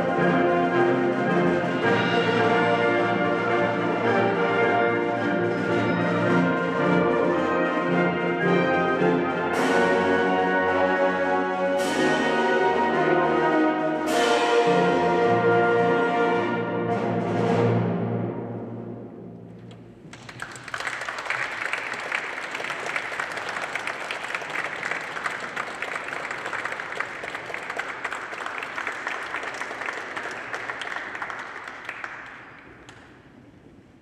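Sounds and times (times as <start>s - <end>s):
audience applauding: 20.0s - 33.2s.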